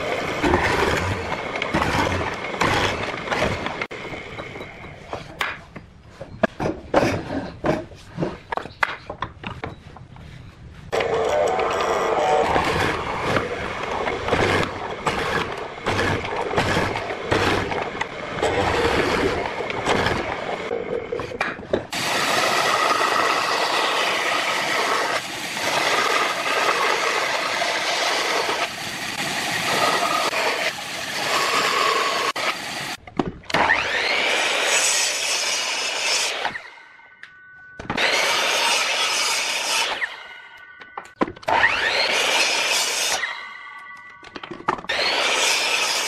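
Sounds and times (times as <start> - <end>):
bandsaw cutting board: 0.0 - 3.9, 10.9 - 32.7, 33.5 - 36.7, 37.8 - 40.3, 41.2 - 43.6, 44.4 - 46.0
miter saw whine: 22.0 - 46.0.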